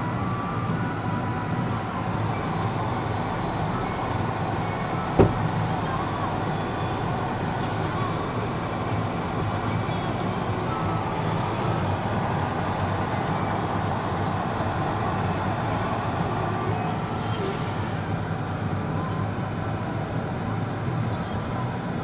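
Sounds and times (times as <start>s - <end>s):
car idling hum: 4.2s - 6.0s.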